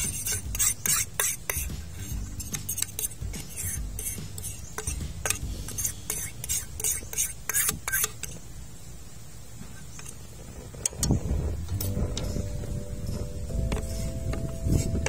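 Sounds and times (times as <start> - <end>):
utensils clicking and clinking: 0.0 - 8.4
low steady hum: 0.0 - 15.0.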